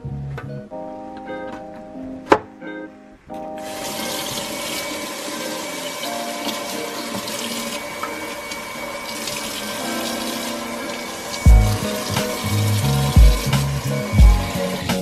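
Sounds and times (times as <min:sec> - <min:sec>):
tap water splashing in sink: 0:03.6 - 0:10.5.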